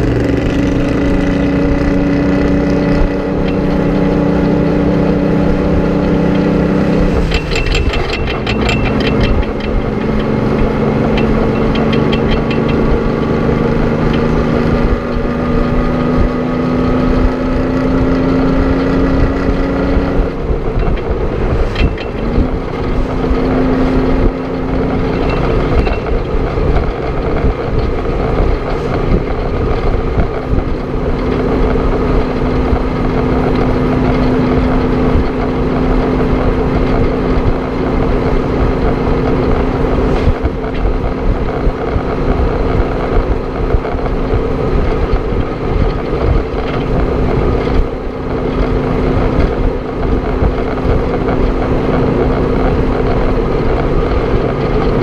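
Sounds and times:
diesel truck engine shifting up: 0.0s - 55.0s
road and wind noise: 0.0s - 55.0s.

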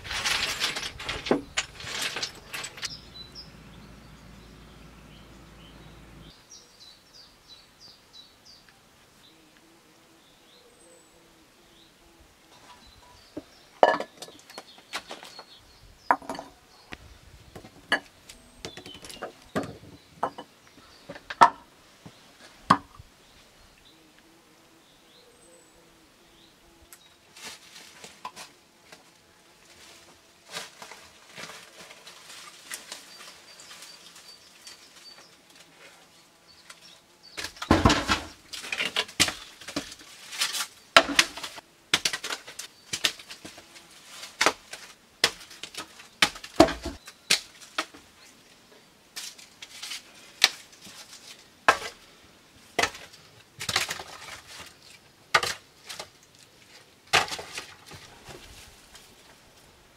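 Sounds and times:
knocks and clatter of tools: 0.0s - 3.2s, 13.8s - 15.5s, 16.1s - 16.5s, 17.6s - 20.5s, 37.4s - 43.6s, 44.4s - 48.0s.

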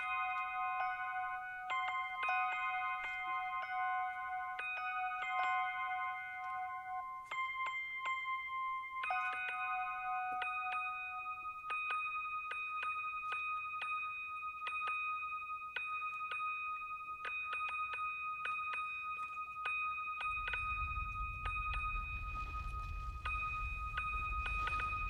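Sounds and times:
synthesized chime-like tones: 0.0s - 25.0s
low rumble: 20.2s - 25.0s.

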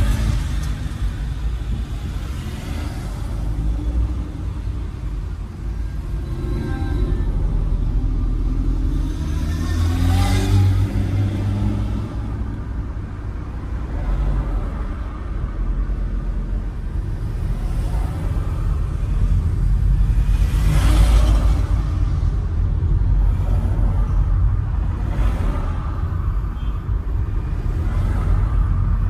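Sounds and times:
vehicle engine and road rumble: 0.0s - 29.0s.

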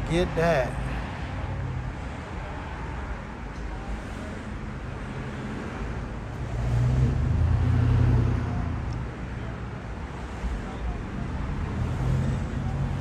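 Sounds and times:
street traffic rumble: 0.0s - 13.0s
motor vehicle passing: 6.4s - 8.9s.

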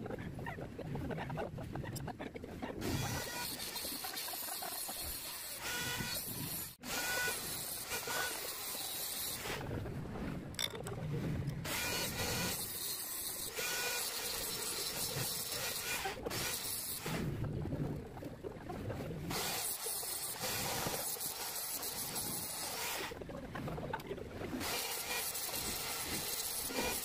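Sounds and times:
handheld grinder hissing on metal: 2.9s - 9.6s, 11.7s - 17.2s, 19.4s - 23.1s, 24.6s - 27.0s.

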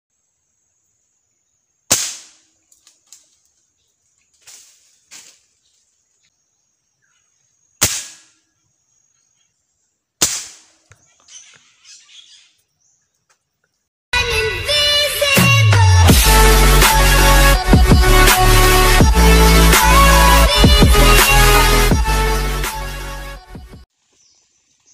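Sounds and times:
air rifle shots: 1.9s - 2.5s, 7.8s - 8.4s, 10.2s - 10.8s.

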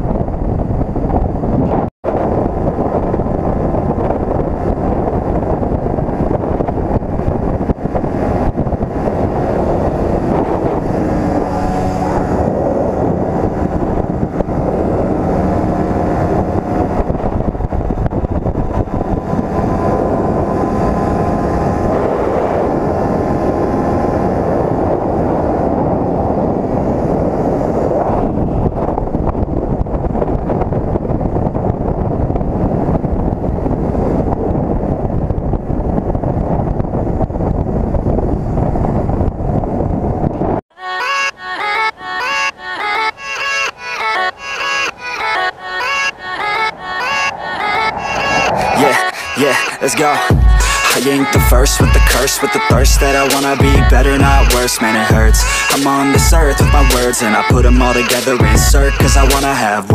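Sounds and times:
wind noise on microphone: 0.0s - 59.9s
motorcycle engine: 5.5s - 27.1s.

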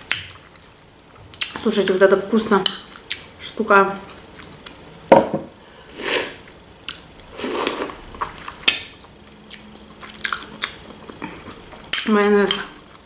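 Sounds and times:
person chewing sausage: 4.1s - 4.8s, 6.4s - 11.9s.

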